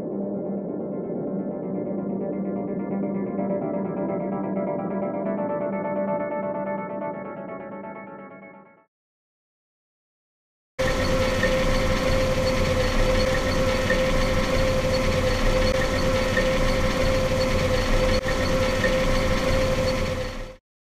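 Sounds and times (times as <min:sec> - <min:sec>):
combine harvester engine drone: 0:10.8 - 0:20.6
high machine whine: 0:10.8 - 0:20.6.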